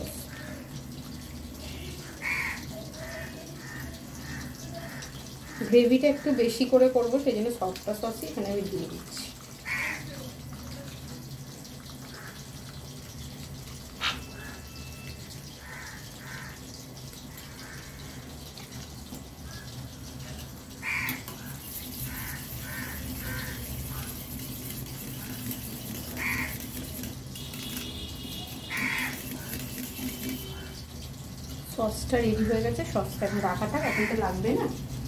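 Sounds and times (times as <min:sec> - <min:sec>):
crows cawing: 0:00.3 - 0:00.7, 0:02.0 - 0:06.4, 0:09.6 - 0:10.1, 0:12.1 - 0:12.4, 0:15.6 - 0:16.7, 0:17.4 - 0:18.3, 0:20.8 - 0:24.1, 0:25.2 - 0:26.7, 0:28.6 - 0:29.5, 0:33.2 - 0:34.2.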